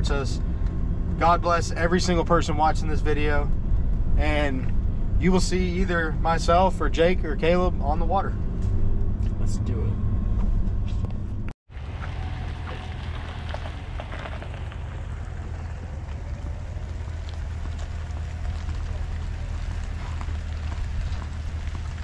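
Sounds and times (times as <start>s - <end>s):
low rumble: 0.0s - 22.0s
rain pattering: 11.7s - 22.0s.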